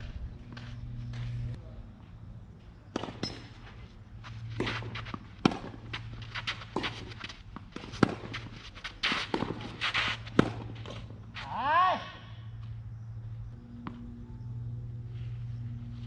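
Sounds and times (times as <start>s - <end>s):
shoes scuffing on sandy court: 0.0s - 1.6s, 3.0s - 11.7s
tennis ball bouncing: 2.9s - 3.6s, 4.4s - 11.2s, 13.7s - 14.1s
racket hitting tennis ball: 3.0s - 3.6s, 4.3s - 11.6s.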